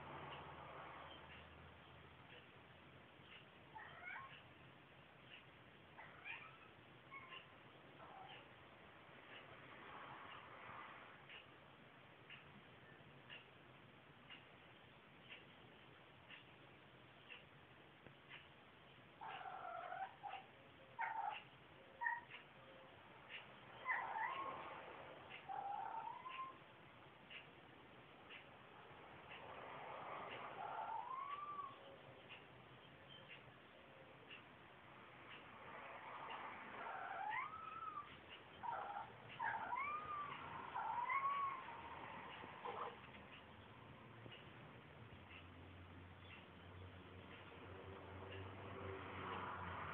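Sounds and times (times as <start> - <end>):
cat meowing: 3.8 - 4.3, 6.0 - 8.4, 30.6 - 31.8, 36.8 - 41.8.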